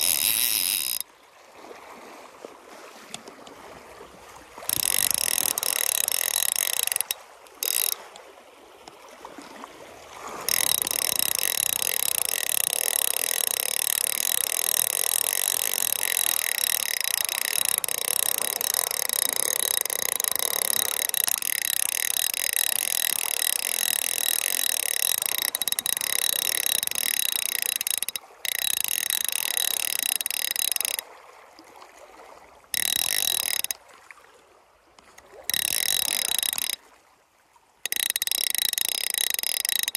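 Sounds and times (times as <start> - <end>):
fly reel ratchet buzzing: 0.0 - 1.1, 4.6 - 8.2, 10.4 - 31.0, 32.8 - 33.8, 35.0 - 36.8, 37.9 - 39.9.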